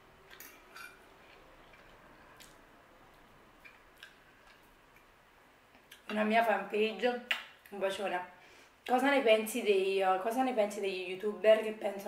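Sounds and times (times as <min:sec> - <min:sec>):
chewing: 0:00.3 - 0:05.1.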